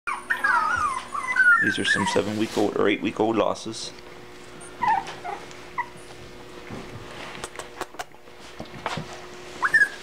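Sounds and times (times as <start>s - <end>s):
puppies whimpering: 0.1s - 3.8s, 4.4s - 6.3s, 9.5s - 10.0s.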